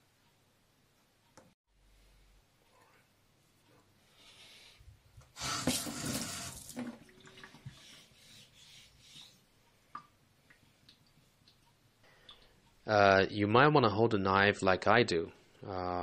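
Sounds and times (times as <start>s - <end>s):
water splashing onto whetstone: 5.6s - 7.7s.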